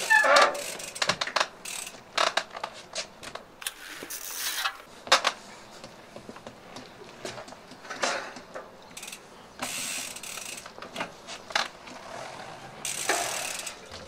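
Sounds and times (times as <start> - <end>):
bike hub ratcheting: 0.0 - 2.7, 9.0 - 12.1, 12.8 - 14.0
bike clicks and knocks: 0.0 - 14.0.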